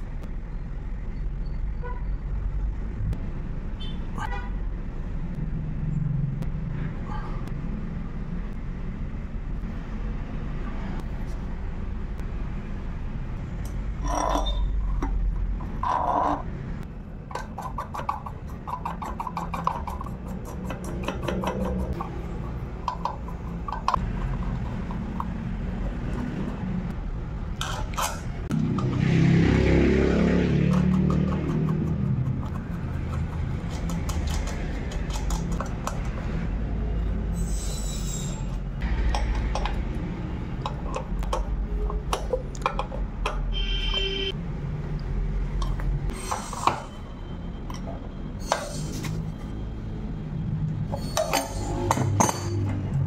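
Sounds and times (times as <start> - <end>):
road traffic: 0.0 - 53.0
car horn toots: 43.5 - 44.4.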